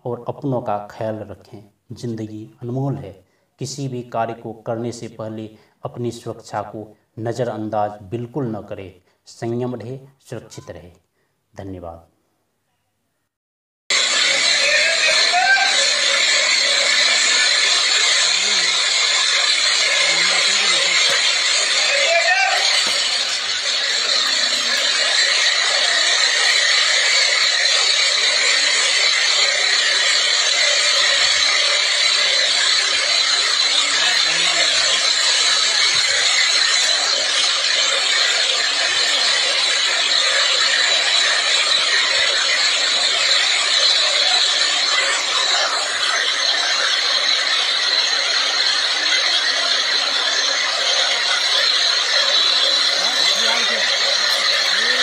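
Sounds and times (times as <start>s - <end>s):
helicopter rotors running: 13.9s - 55.0s.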